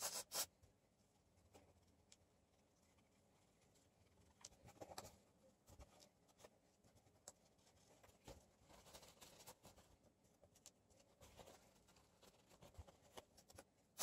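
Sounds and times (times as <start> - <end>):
faint rubbing and rustling: 2.7 - 14.0.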